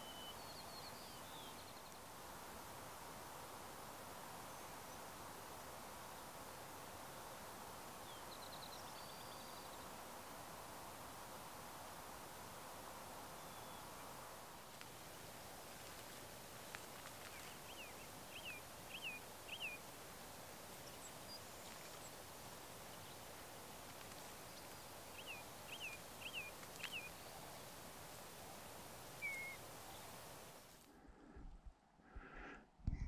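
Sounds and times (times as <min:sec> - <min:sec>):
bird whistling call: 0:00.0 - 0:01.5, 0:29.2 - 0:29.6
faint steady hiss: 0:00.0 - 0:33.0.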